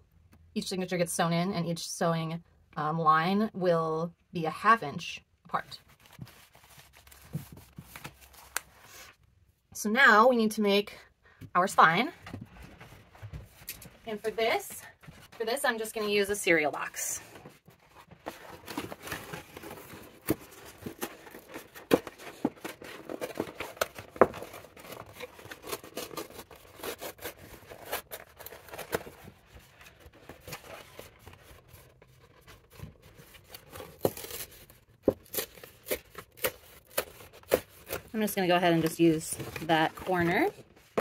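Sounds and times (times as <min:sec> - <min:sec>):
cardboard box being torn: 0:33.4 - 0:38.1.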